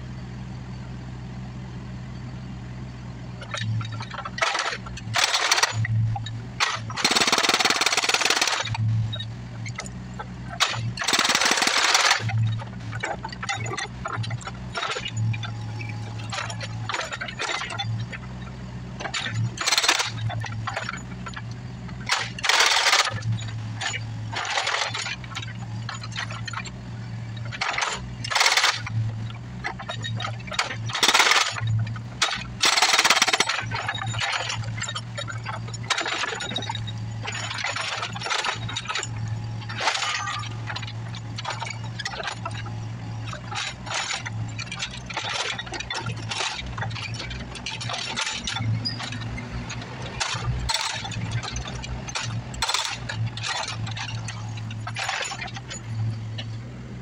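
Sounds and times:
excavator engine running: 0.0s - 57.0s
hydraulic rock hammer breaking concrete: 3.5s - 6.0s, 6.6s - 9.8s, 10.5s - 15.4s, 19.0s - 21.4s, 22.0s - 26.6s, 27.4s - 42.6s, 43.3s - 56.6s
cracks of breaking concrete chunks: 30.6s - 34.9s.

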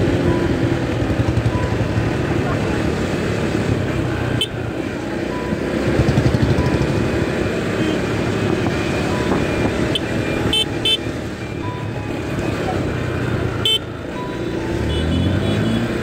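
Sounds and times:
motorcycle engine running: 0.0s - 16.0s
vehicle horn beeps: 7.8s - 8.1s, 9.8s - 11.2s, 13.5s - 13.9s, 14.7s - 16.0s.

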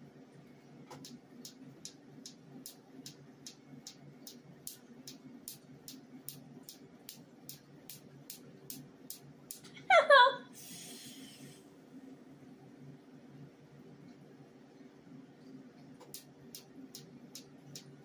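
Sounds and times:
faint steady hum: 0.0s - 18.0s
laser firing sharp snaps: 0.9s - 9.7s, 16.0s - 18.0s.

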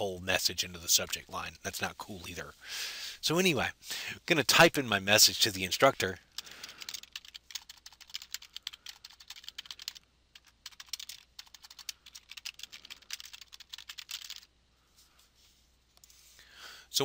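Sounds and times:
keyboard typing: 6.3s - 14.5s.

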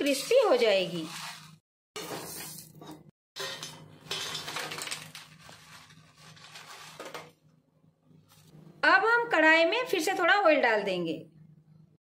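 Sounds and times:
steel clinking and scraping: 1.2s - 7.3s
dried chillies rustling: 4.4s - 7.2s.

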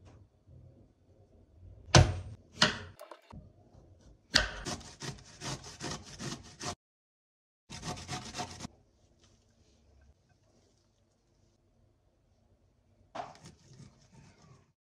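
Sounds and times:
grater rasping: 4.6s - 6.8s, 7.7s - 8.7s, 13.4s - 14.7s.

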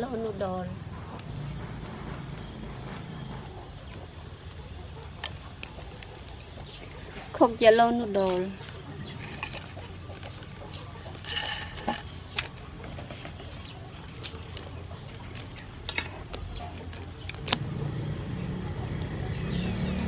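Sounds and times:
metal utensils clinking on pan: 11.1s - 12.5s.

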